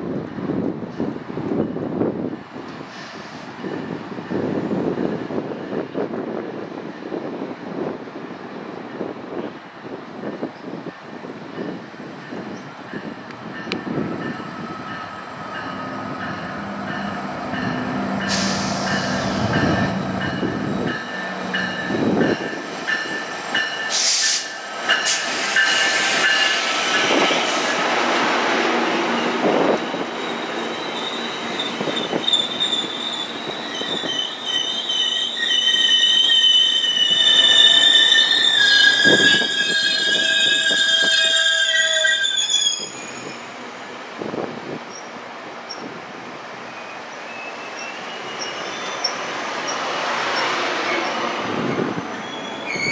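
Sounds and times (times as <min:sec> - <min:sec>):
train rolling past: 0:00.0 - 0:52.9
train wheels squealing: 0:13.6 - 0:27.8, 0:29.0 - 0:43.5, 0:46.7 - 0:52.9.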